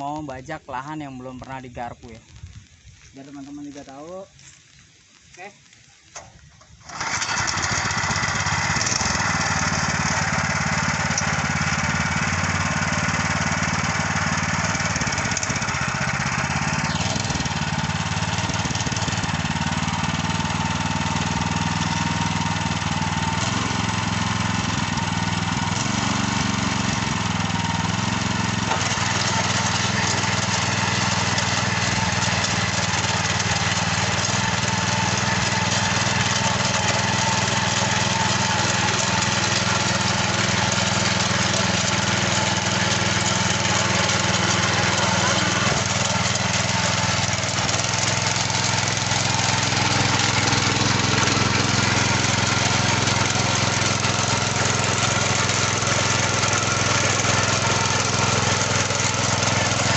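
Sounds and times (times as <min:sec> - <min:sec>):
tines churning soil: 0:00.0 - 0:59.9
tiller engine running under load: 0:06.2 - 0:59.9.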